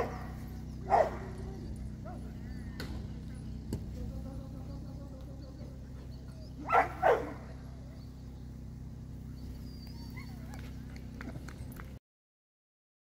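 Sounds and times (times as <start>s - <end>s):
dog barking: 0.0s - 2.7s, 6.5s - 7.6s.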